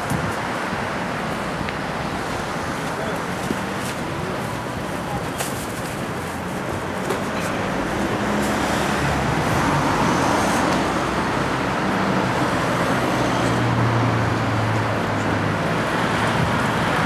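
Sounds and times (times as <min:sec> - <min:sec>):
passing cars: 0:00.0 - 0:17.0.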